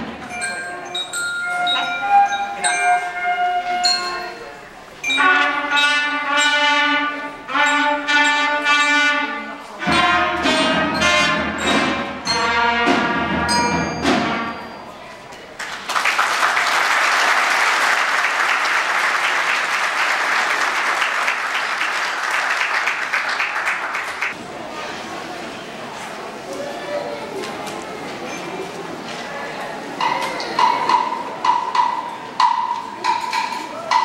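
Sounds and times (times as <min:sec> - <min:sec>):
concert band playing: 0:01.4 - 0:14.8
audience applauding: 0:15.6 - 0:24.4.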